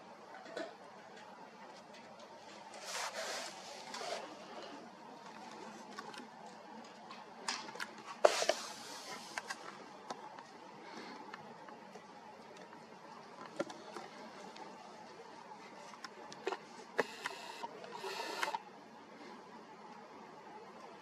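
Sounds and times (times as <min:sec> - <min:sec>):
faint rustling and scraping: 0:01.6 - 0:06.6, 0:08.0 - 0:11.2.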